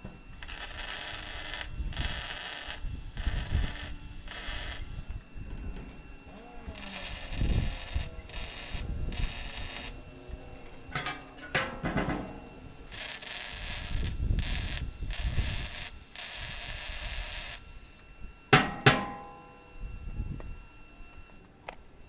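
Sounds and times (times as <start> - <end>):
hammer striking steel: 11.0 - 12.4, 18.6 - 19.7.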